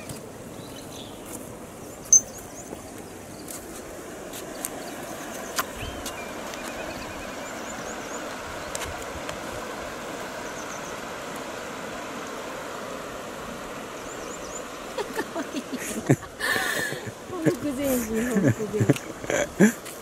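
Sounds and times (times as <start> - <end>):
river water flowing: 0.0 - 20.0
faint high chirps: 2.0 - 2.8.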